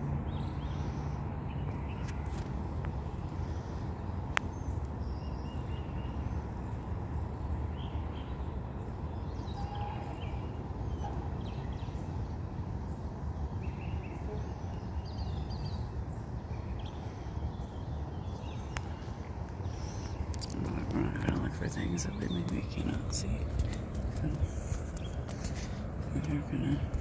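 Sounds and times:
steady low rumble: 0:00.0 - 0:27.0.

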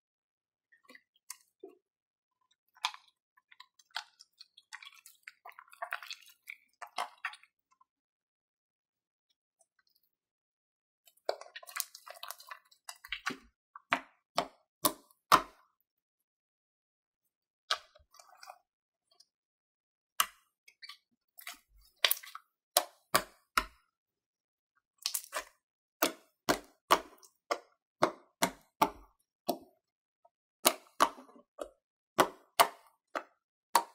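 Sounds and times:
fingers pressing wet slime: 0:25.0 - 0:29.8, 0:30.6 - 0:33.9.

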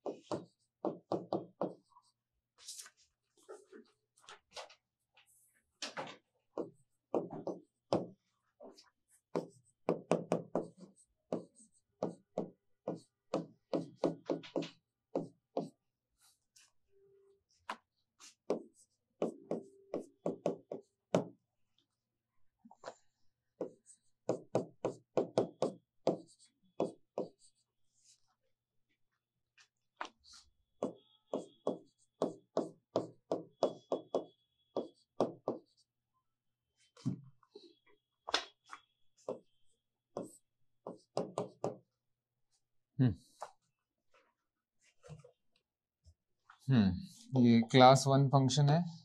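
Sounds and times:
chalk tapping and scraping on blackboard: 0:00.0 - 0:04.6, 0:06.5 - 0:16.7, 0:17.6 - 0:21.3, 0:23.6 - 0:28.3, 0:29.6 - 0:35.9, 0:40.1 - 0:41.9.

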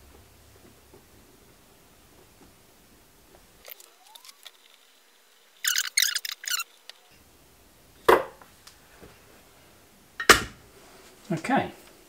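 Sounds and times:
short high scratchy squeaks: 0:03.6 - 0:07.2.

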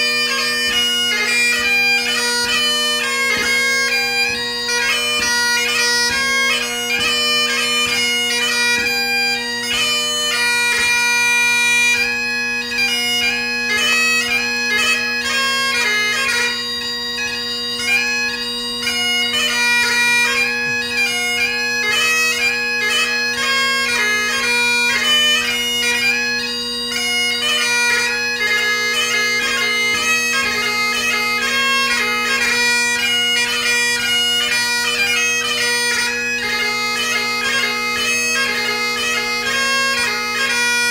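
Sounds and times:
bagpipe playing: 0:00.0 - 0:40.9.

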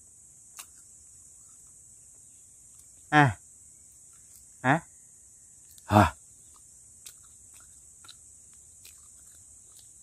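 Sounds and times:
high insect drone: 0:00.0 - 0:10.0
man's short exclamation: 0:05.9 - 0:06.2.

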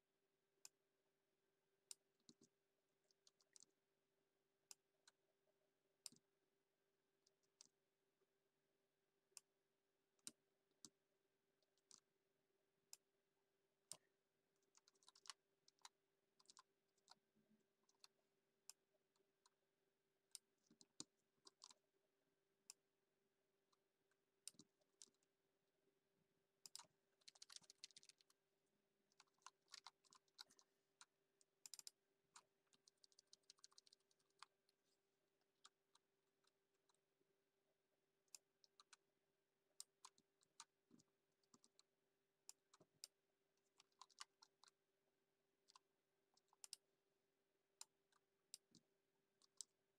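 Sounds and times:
keyboard typing: 0:26.7 - 0:28.3.

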